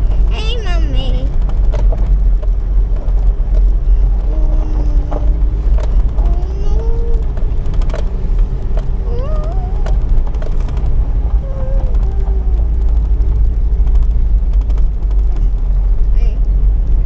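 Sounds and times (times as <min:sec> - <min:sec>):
knocks and rattles: 0:00.0 - 0:03.8, 0:07.2 - 0:11.0, 0:11.8 - 0:15.9
vehicle rumbling off-road: 0:00.0 - 0:17.0.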